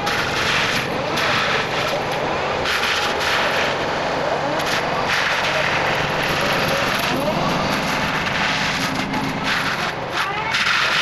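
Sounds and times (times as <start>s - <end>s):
forestry mulcher grinding: 0.0s - 11.0s.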